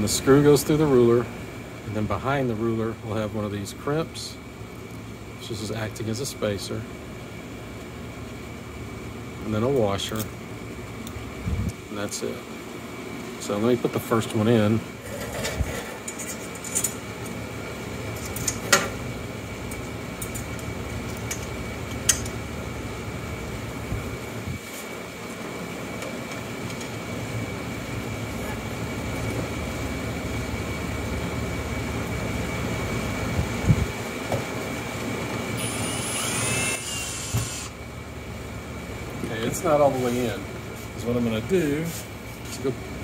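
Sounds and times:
steady mechanical hum: 0.0s - 43.0s
cordless drill whirring: 35.6s - 37.8s.

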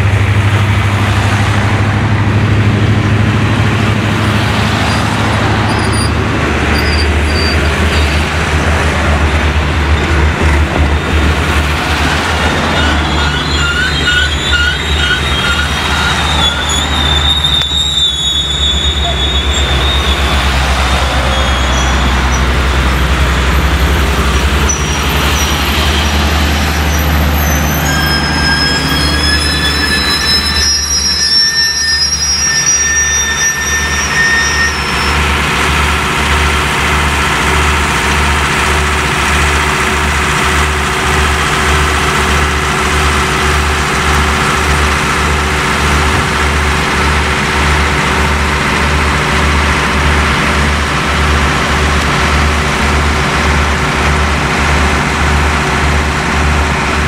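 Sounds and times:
train coaches rolling on rails: 0.0s - 57.0s
steel wheels squealing: 4.8s - 8.3s, 12.5s - 35.9s.

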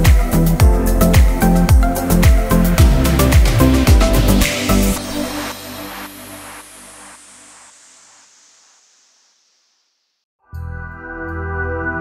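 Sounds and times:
electronic music with echoing notes: 0.0s - 8.2s.

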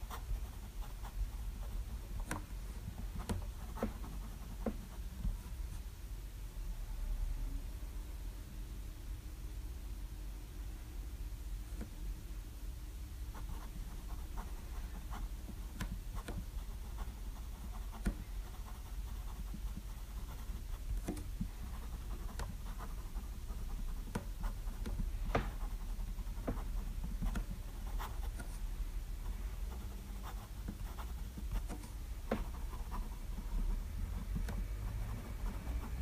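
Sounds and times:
fountain pen scratching on paper: 0.0s - 5.5s, 13.4s - 28.6s, 29.6s - 36.0s
low steady hum: 0.0s - 36.0s.

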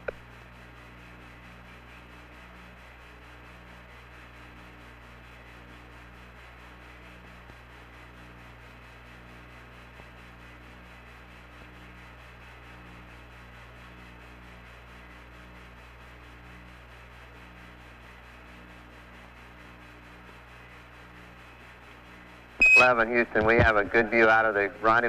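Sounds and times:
low electrical hum: 0.0s - 25.0s
radio line hiss: 22.6s - 25.0s.

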